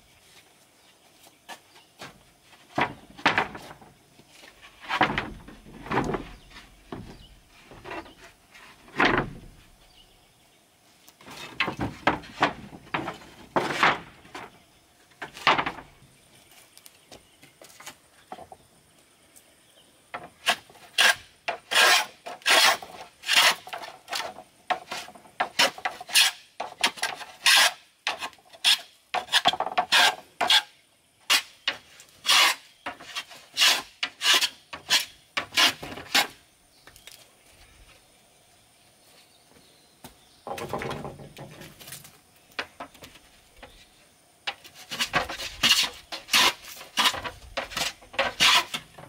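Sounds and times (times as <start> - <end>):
hand tool scraping wood: 20.2 - 30.7, 31.3 - 36.4, 44.5 - 49.0.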